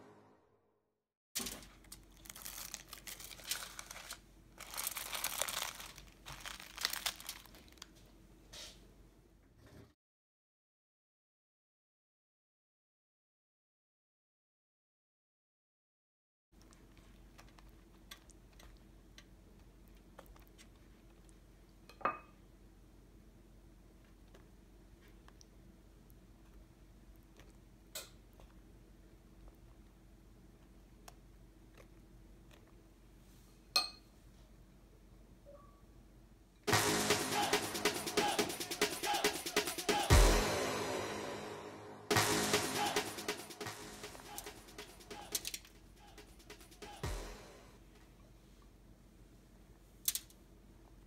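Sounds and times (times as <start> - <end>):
aluminum foil crinkling: 1.4 - 8.0, 45.2 - 45.8
spoon clinking on dish: 33.8 - 34.1.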